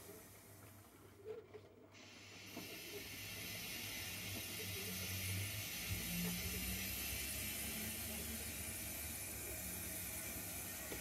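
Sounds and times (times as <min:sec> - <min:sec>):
model steam locomotive hissing: 0:00.0 - 0:00.4, 0:02.0 - 0:11.0.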